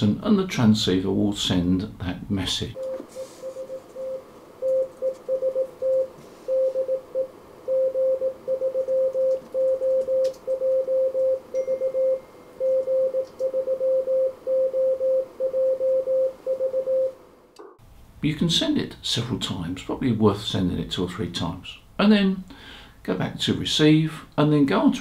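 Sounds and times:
morse code beeps: 0:02.8 - 0:17.2.

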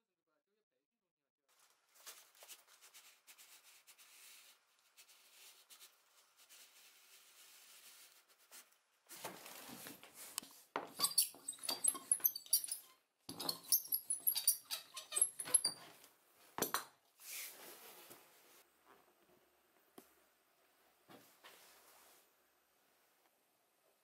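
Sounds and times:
high squeaky chirps: 0:11.0 - 0:15.8
steel roller rolling on strap: 0:11.0 - 0:15.8.

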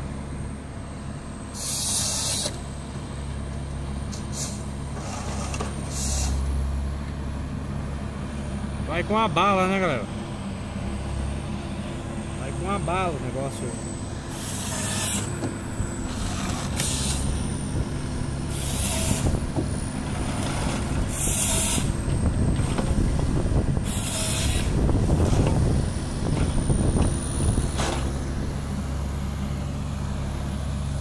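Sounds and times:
diesel engine droning: 0:00.0 - 0:31.0
saw cutting log hissing: 0:01.6 - 0:02.6, 0:04.2 - 0:06.4, 0:14.3 - 0:15.3, 0:16.1 - 0:17.3, 0:18.5 - 0:19.4, 0:21.1 - 0:22.0, 0:23.8 - 0:24.8.

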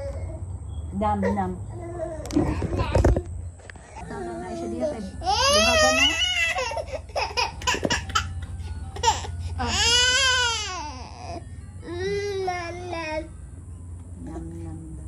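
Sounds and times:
infant crying: 0:04.1 - 0:13.3.

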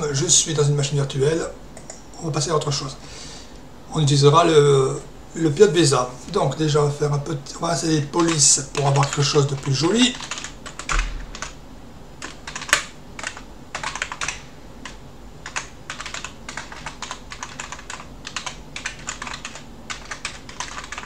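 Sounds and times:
keyboard typing clicks: 0:08.2 - 0:11.6, 0:12.2 - 0:21.0.

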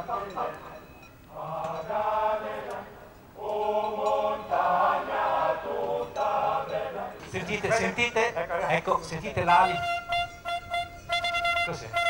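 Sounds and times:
group of voices singing: 0:00.0 - 0:08.1.

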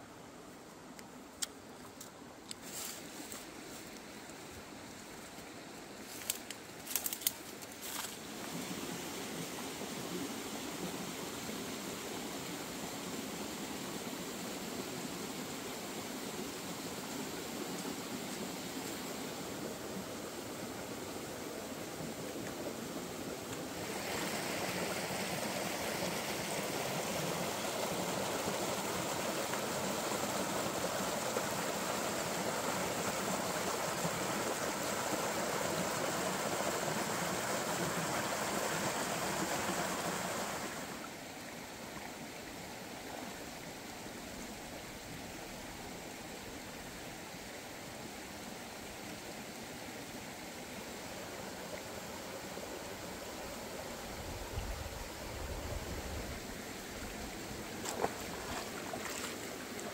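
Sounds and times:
stream water rushing over rocks: 0:03.0 - 0:59.9.

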